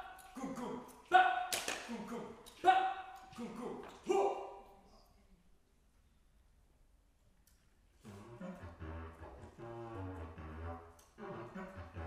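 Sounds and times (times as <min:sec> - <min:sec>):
bass clarinet low notes: 0:08.0 - 0:12.0.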